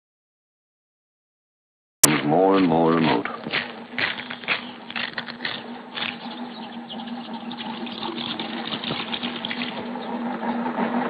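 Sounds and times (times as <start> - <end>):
hand pump handle clanking: 2.0 - 6.4, 7.6 - 9.9
steady hum: 2.0 - 11.0
water running into metal bucket: 7.5 - 10.0.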